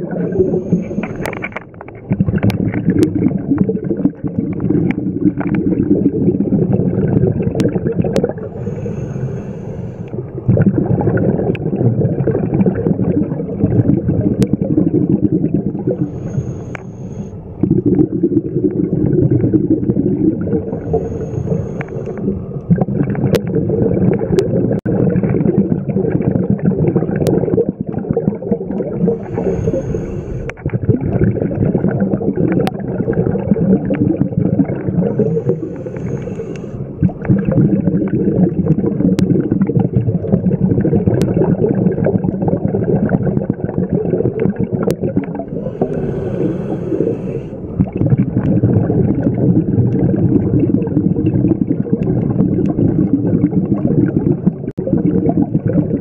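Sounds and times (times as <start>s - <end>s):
gurgling exhaled bubbles: 0.0s - 56.0s.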